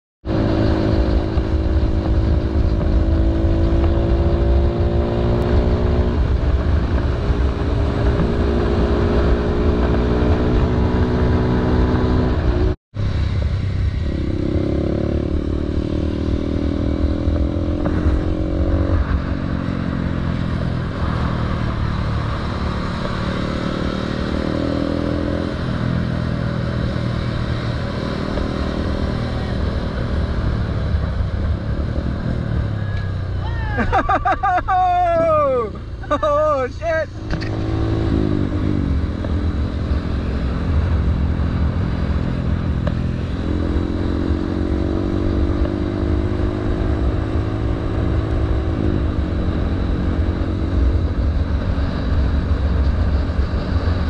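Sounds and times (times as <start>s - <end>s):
wind rumble on microphone: 0.2s - 33.2s
motorcycle engine cruising: 0.2s - 54.0s.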